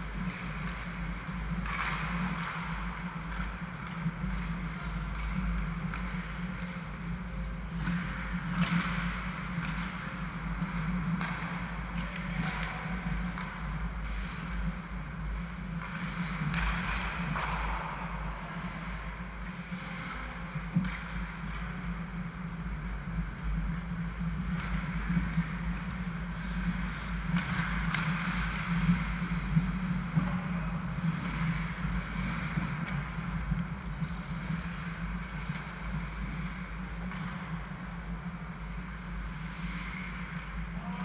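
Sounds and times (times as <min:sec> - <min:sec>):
skates scraping on ice: 0:00.0 - 0:40.7
steady low hum: 0:00.0 - 0:41.0.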